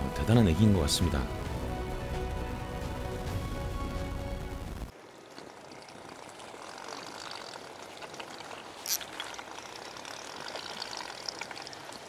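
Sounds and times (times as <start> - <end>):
sea water splashing: 4.9 - 12.0.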